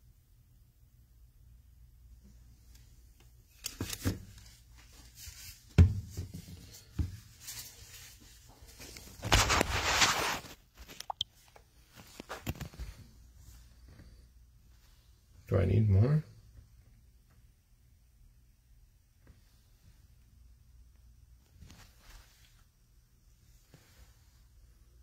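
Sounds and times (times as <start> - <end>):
rustling: 3.5 - 15.2, 21.4 - 22.7.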